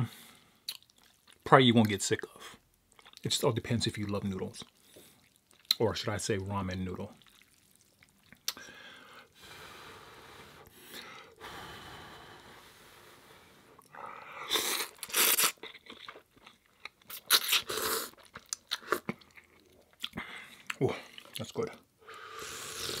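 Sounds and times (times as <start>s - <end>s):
soft breathy hiss: 8.5s - 15.3s, 22.0s - 23.0s
man slurping noodles: 14.4s - 15.6s, 17.3s - 18.2s, 22.2s - 23.0s.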